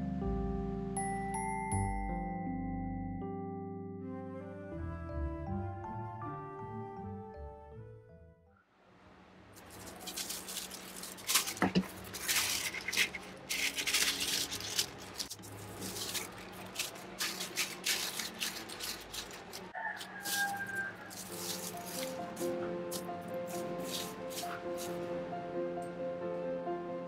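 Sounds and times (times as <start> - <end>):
background music: 0.0 - 8.5, 11.2 - 27.0
tissue paper rustling and crinkling: 9.6 - 25.0.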